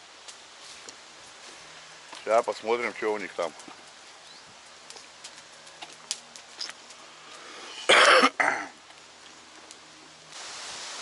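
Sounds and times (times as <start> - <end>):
steady rushing hiss: 0.0 - 11.0
person coughing: 7.9 - 8.7.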